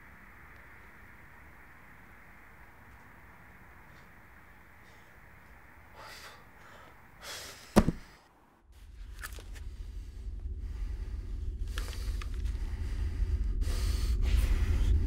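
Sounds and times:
low rumbling drone: 8.4 - 15.0.

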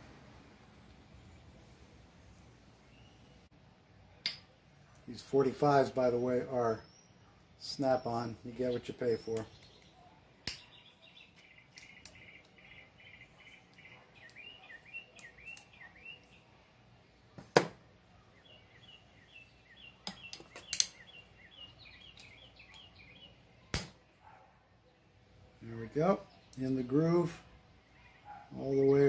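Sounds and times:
small bird chirping: 6.3 - 16.6, 18.1 - 23.7
metallic clicks of circlip pliers: 20.1 - 21.0.

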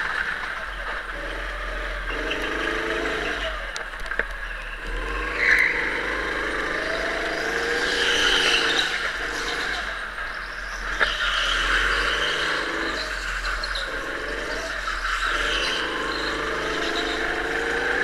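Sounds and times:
go-kart motor accelerating: 0.0 - 18.0.

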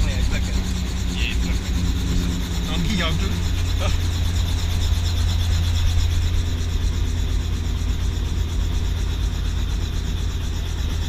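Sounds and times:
helicopter engine and rotor drone: 0.0 - 11.0.

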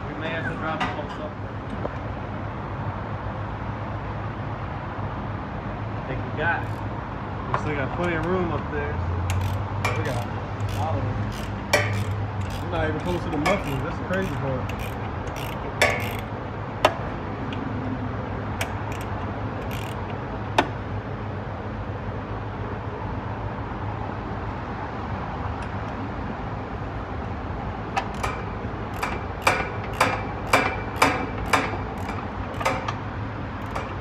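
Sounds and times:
metallic clicks of hand tools: 9.3 - 16.2, 18.6 - 20.2, 28.0 - 33.0, 33.6 - 34.0.

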